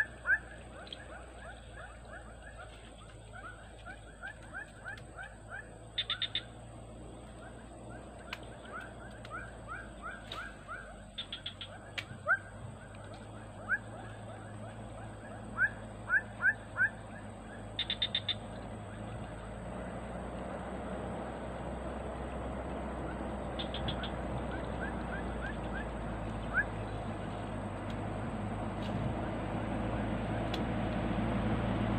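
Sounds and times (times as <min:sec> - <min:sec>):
birds whistling rising notes: 0:00.0 - 0:19.5, 0:23.0 - 0:27.2
outdoor background noise: 0:00.0 - 0:31.9.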